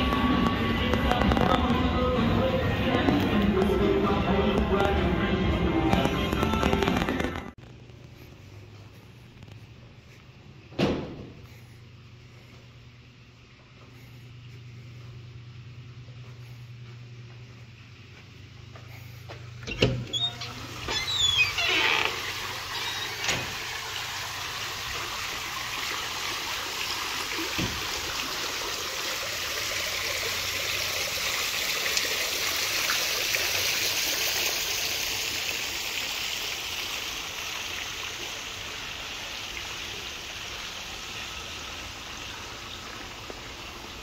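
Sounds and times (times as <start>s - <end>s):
running water rushing: 19.8s - 44.0s.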